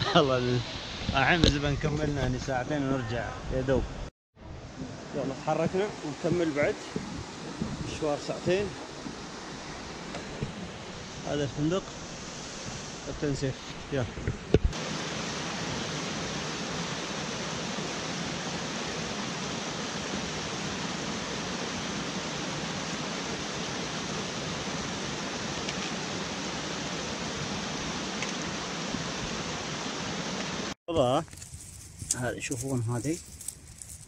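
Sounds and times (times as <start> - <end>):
water rushing over rocks: 4.7 - 14.0, 14.6 - 30.8.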